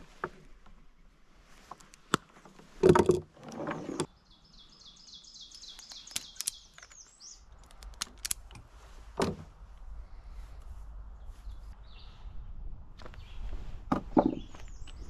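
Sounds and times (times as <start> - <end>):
small bird singing: 3.8 - 7.8, 11.2 - 12.4, 14.3 - 15.0
wire strippers clicking: 5.5 - 8.6.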